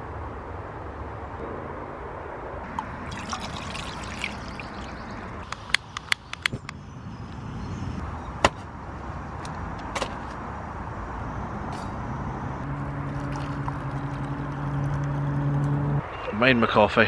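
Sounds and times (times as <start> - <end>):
road traffic noise: 0.0 - 17.0
low steady hum: 12.6 - 16.1.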